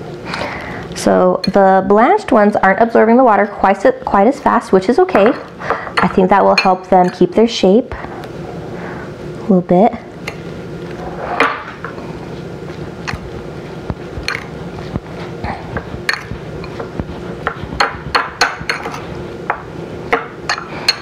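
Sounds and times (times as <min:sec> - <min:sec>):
steady low hum: 0:00.0 - 0:21.0
spoon clinking against bowl: 0:06.5 - 0:07.2, 0:16.1 - 0:16.3.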